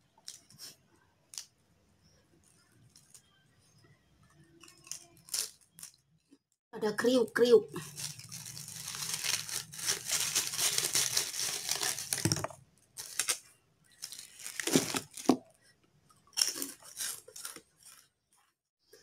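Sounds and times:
fried food crackling as torn: 7.8 - 12.4, 16.4 - 18.1.

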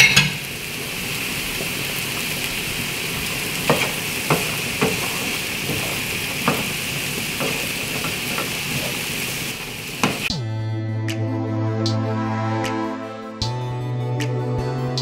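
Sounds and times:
chicken sizzling in a frying pan: 0.0 - 10.3
wooden spoon scraping a pan: 3.2 - 9.4.

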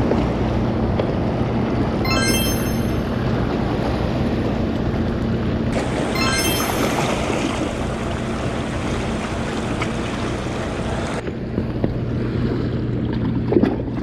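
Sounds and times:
sea waves: 5.8 - 11.2
low engine-like hum: 7.5 - 14.0.

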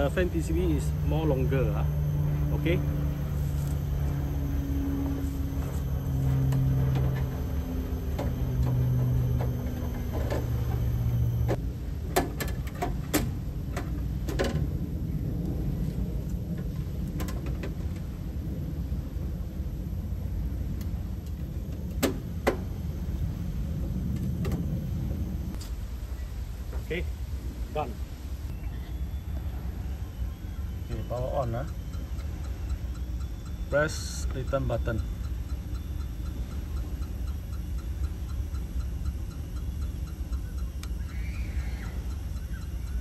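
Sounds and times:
steady low rumble: 0.0 - 43.0
faint ticks: 31.6 - 43.0.

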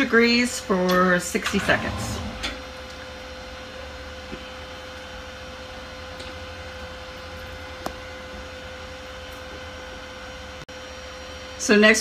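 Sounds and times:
background hum and hiss: 0.0 - 12.0.

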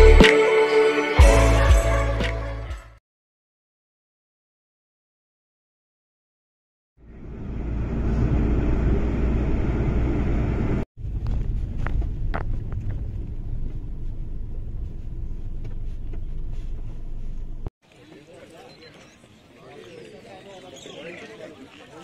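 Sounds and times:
vehicle rumble from on board: 7.0 - 17.7.

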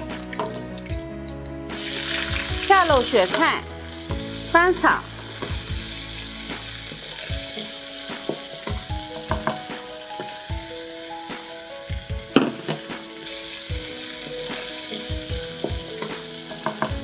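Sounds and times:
food sizzling in hot oil: 0.0 - 17.0
wooden spatula knocking pan: 7.5 - 10.4, 11.4 - 13.1, 14.6 - 17.0.

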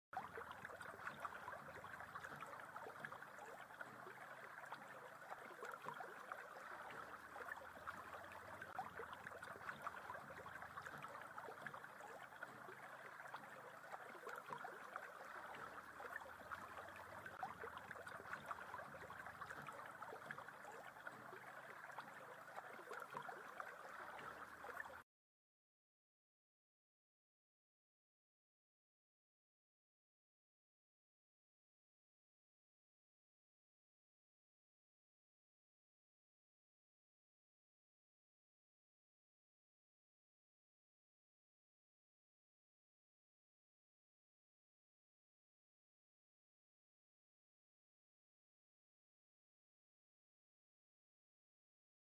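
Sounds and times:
river water rippling over stones: 0.2 - 25.0.

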